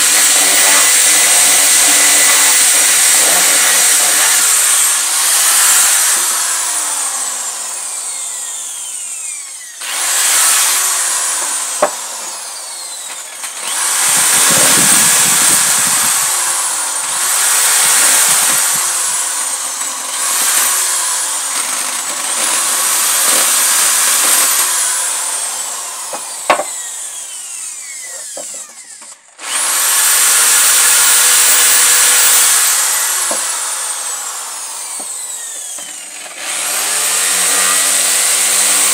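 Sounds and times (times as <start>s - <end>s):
drill bit grinding through wood: 0.0s - 38.9s
electric drill whining: 0.0s - 38.9s.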